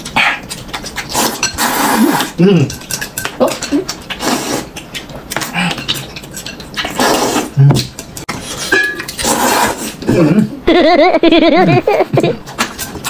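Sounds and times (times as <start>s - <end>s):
noodles slurped noisily: 1.0s - 2.4s, 4.1s - 4.8s, 6.9s - 7.6s, 8.4s - 10.2s.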